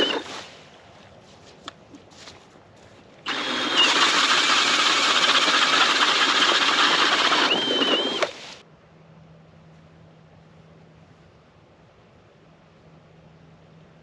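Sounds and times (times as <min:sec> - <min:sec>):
cordless drill motor whine: 0:00.0 - 0:00.3, 0:03.3 - 0:08.6
auger bit grinding ice: 0:00.0 - 0:00.4, 0:03.3 - 0:08.6.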